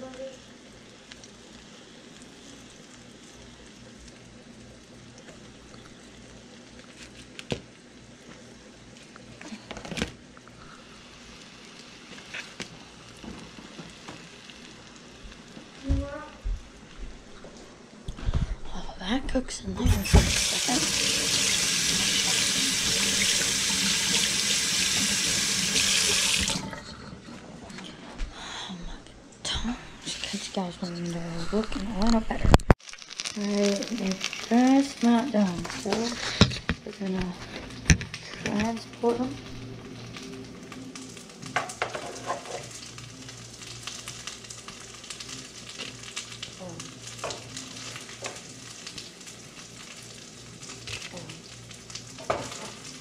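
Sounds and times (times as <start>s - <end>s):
food sizzling in hot oil: 0.0s - 9.2s, 10.6s - 15.9s, 19.9s - 26.6s, 32.8s - 36.5s, 37.8s - 53.0s
faucet running into sink: 19.9s - 26.7s.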